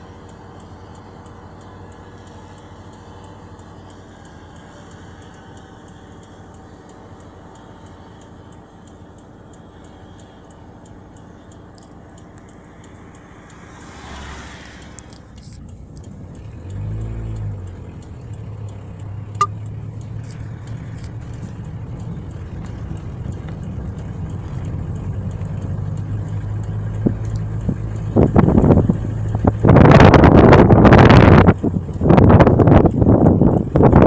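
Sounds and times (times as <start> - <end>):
car engine humming: 0.0 - 34.0
wind buffeting microphone: 26.4 - 34.0.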